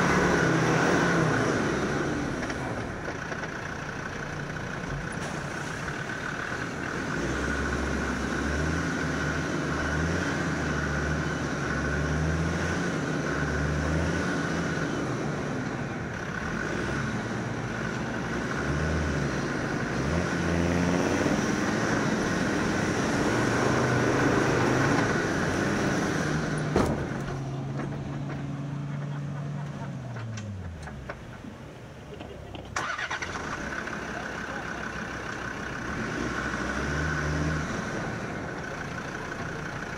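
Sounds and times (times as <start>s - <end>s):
diesel engine revving under load: 0.0s - 3.1s, 3.8s - 31.4s, 32.6s - 39.9s.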